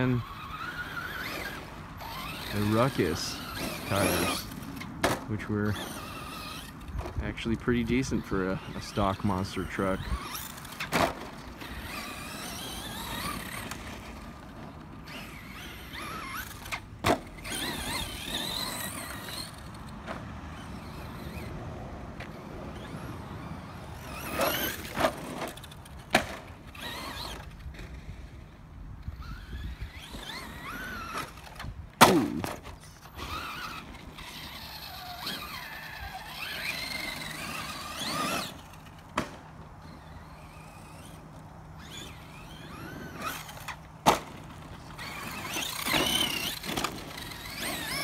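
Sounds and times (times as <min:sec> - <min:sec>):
electric motor whining: 0:00.0 - 0:04.9, 0:05.6 - 0:39.1, 0:39.7 - 0:48.0.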